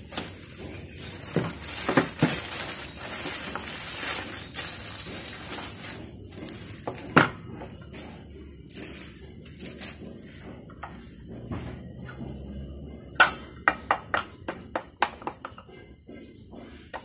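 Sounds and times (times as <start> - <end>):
plastic bag crinkling: 0.0 - 7.3.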